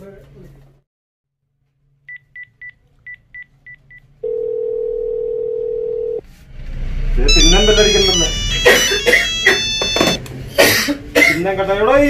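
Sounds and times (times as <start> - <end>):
steady lower phone tone: 4.2 - 6.2, 7.3 - 10.2
short high key beeps: 7.3 - 10.2.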